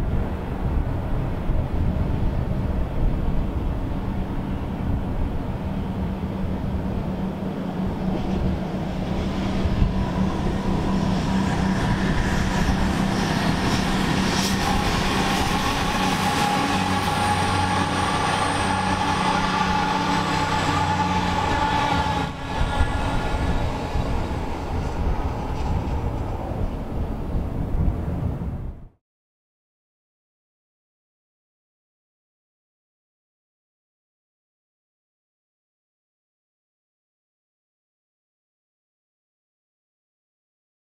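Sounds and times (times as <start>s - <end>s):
diesel train engine drone: 0.0s - 28.8s
train wheels on rails: 7.4s - 27.2s.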